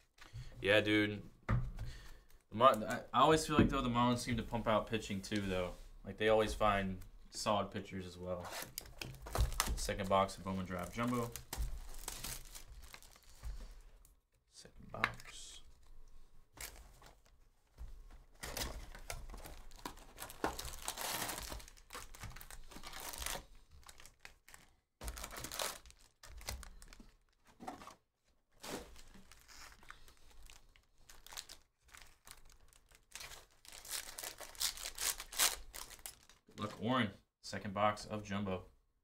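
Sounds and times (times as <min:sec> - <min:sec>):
foil packs crinkling and tearing: 0:08.5 - 0:13.5, 0:18.4 - 0:27.4, 0:28.6 - 0:36.4.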